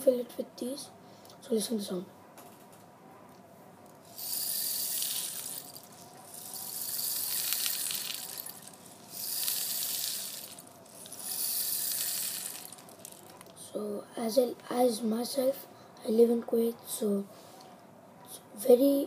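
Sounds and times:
rain stick grains trickling: 4.0s - 13.5s.

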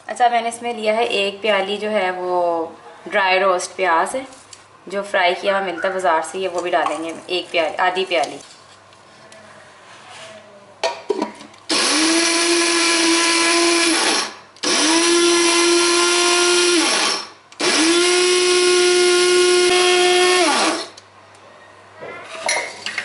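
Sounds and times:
electric spice grinder whining: 11.7s - 21.0s.

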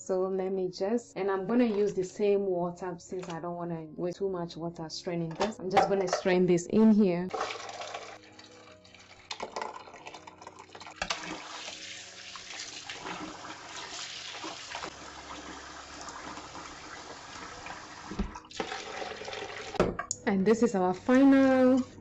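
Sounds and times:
slurry poured into colander: 7.3s - 14.9s
water splashing over bowl: 7.3s - 19.8s
tap water running into sink: 7.3s - 20.0s.

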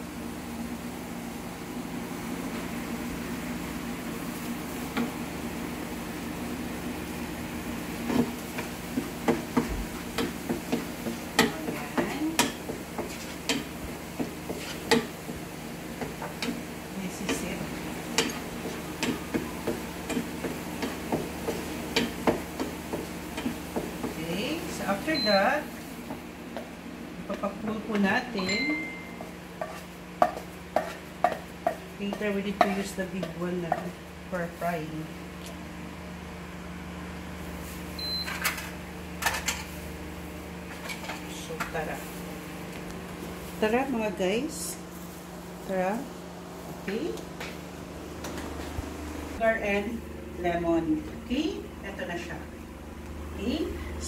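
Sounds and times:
steady low hum: 0.0s - 54.0s
utensil scraping frying pan: 8.0s - 24.8s, 29.6s - 34.0s
cooktop beep: 25.1s - 25.6s, 28.3s - 29.4s, 38.0s - 38.5s.

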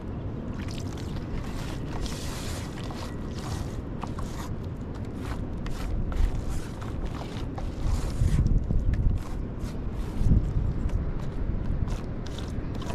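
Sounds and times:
wet paste scraping on metal: 0.9s - 10.4s.

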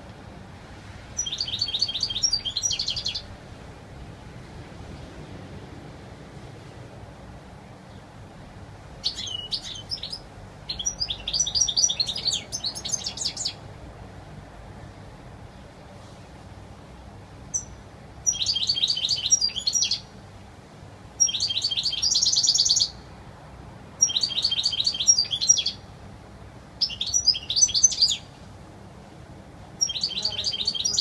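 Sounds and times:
goldfinch twittering song: 1.2s - 3.3s, 9.0s - 13.6s, 17.5s - 20.1s, 21.2s - 23.0s, 24.0s - 25.8s, 26.8s - 28.3s, 29.8s - 31.0s.

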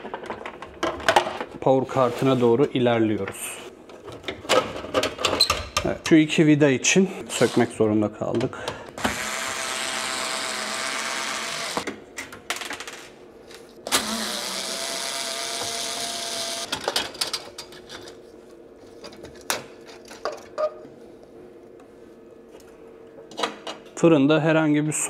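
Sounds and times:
electric screwdriver running: 9.0s - 11.8s, 13.9s - 16.7s.

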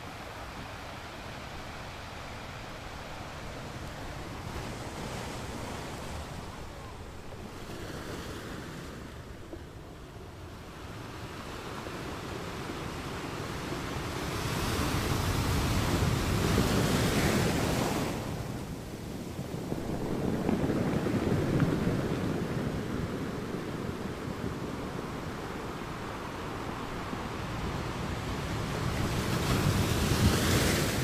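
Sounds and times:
ocean waves on shore: 0.0s - 31.0s.

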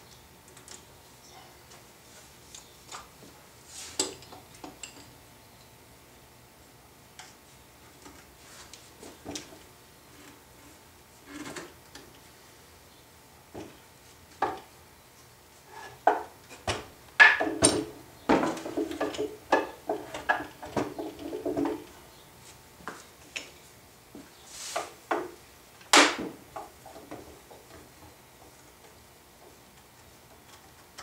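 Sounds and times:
wooden clamps clacking: 16.0s - 21.9s.

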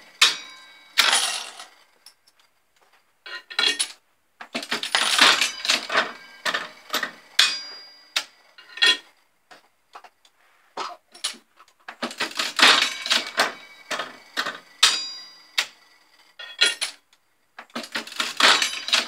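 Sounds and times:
slot machine metallic clanks and clicks: 0.1s - 1.8s, 4.6s - 9.1s, 12.1s - 15.8s, 17.7s - 19.0s.

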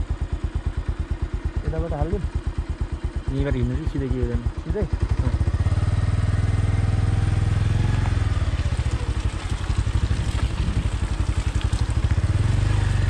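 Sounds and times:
engine running at low revs: 1.6s - 13.0s.

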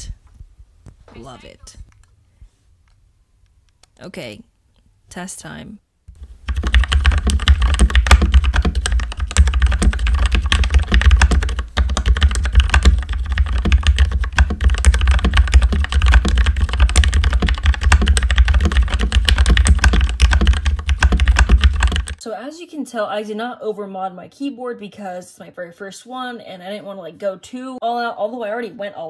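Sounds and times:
fast mechanical keyboard typing: 6.2s - 22.2s.

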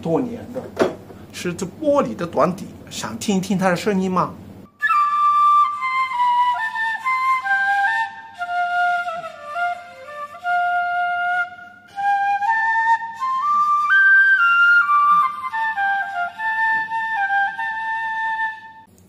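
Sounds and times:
piccolo melody: 4.7s - 18.9s.

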